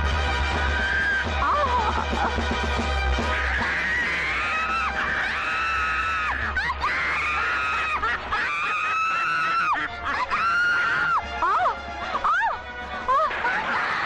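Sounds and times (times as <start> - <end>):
woman screaming: 0.9 - 2.2, 3.5 - 13.3.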